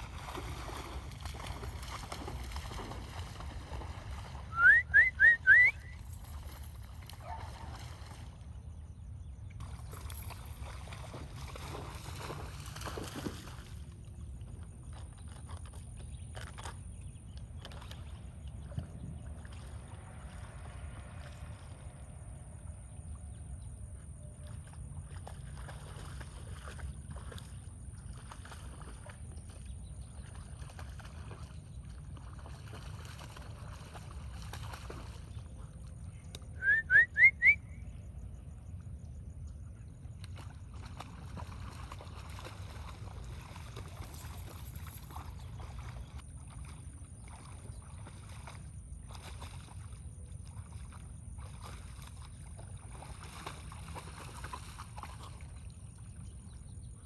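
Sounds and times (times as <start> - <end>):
dog splashing through water: 0.0 - 36.1, 40.0 - 56.9
low steady rumble: 0.0 - 36.6
rising whistle-like chirps: 4.5 - 6.0, 36.6 - 38.0.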